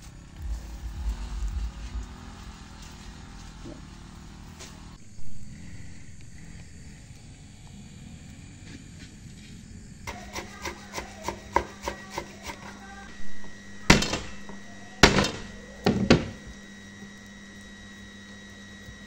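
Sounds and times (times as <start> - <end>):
knife chopping on cutting board: 10.1 - 12.8.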